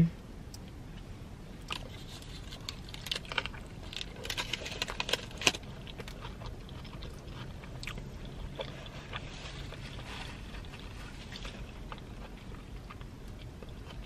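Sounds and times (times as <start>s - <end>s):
chewing: 1.6s - 14.0s
foil wrapper crinkling: 1.7s - 6.2s.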